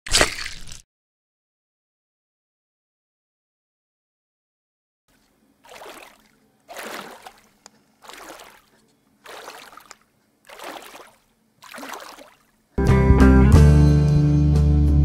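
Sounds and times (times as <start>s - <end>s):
water swishing: 5.1s - 12.7s.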